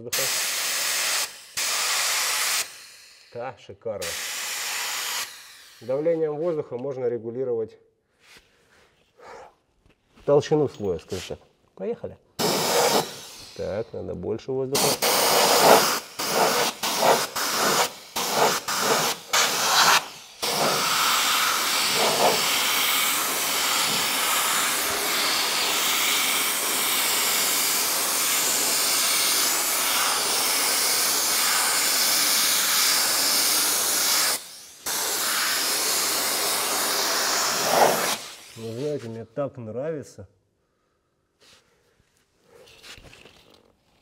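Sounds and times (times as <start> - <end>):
pneumatic spray gun hissing: 0.0 - 3.4, 4.0 - 6.5, 12.4 - 39.0.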